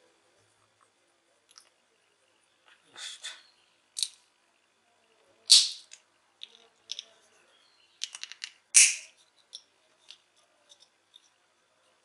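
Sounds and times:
plastic parts clicking: 0:05.5 - 0:07.1, 0:08.0 - 0:11.3.

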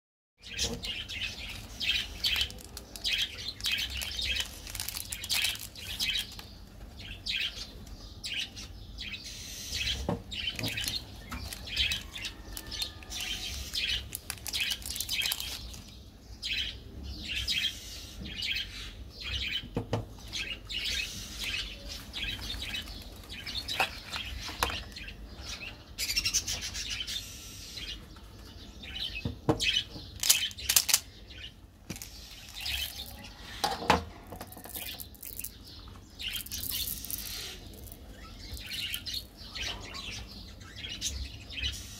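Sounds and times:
plastic wrappers crinkling: 0:01.2 - 0:06.5, 0:10.5 - 0:15.9, 0:22.0 - 0:25.0, 0:30.2 - 0:31.1, 0:31.9 - 0:33.3, 0:34.3 - 0:39.4.

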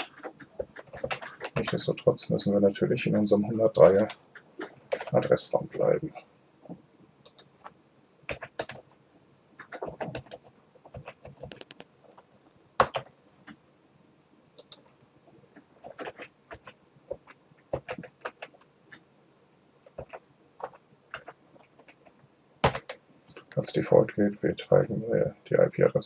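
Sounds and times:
computer keyboard typing: 0:00.0 - 0:01.8, 0:03.9 - 0:05.4, 0:07.2 - 0:07.7, 0:08.3 - 0:08.8, 0:09.6 - 0:12.2, 0:12.8 - 0:13.6, 0:14.6 - 0:14.9, 0:15.8 - 0:19.0, 0:19.8 - 0:23.0.

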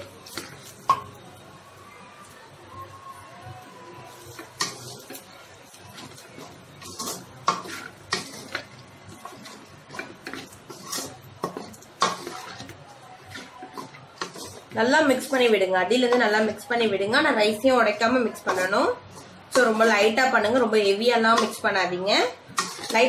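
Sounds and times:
wooden spatula scraping metal pan: 0:00.0 - 0:01.0, 0:04.2 - 0:16.6, 0:17.6 - 0:21.8, 0:22.4 - 0:23.0.

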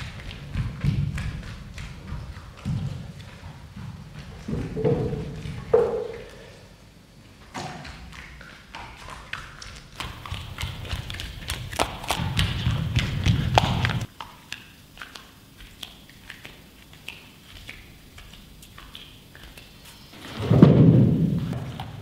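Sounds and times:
bare feet on stage floor: 0:00.0 - 0:06.6, 0:07.7 - 0:14.1
wooden chairs and table handled: 0:04.4 - 0:06.4.

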